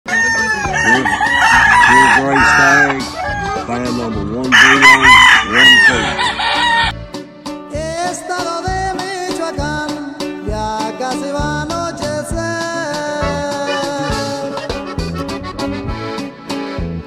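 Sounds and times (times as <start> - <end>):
roosters crowing: 0.1 - 7.0
corrido music: 0.1 - 17.0.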